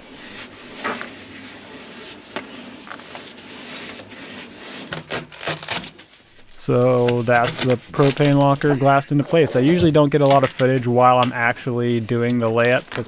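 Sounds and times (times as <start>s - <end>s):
paintbrush scratching on cloth: 0.0s - 5.5s, 6.3s - 9.8s.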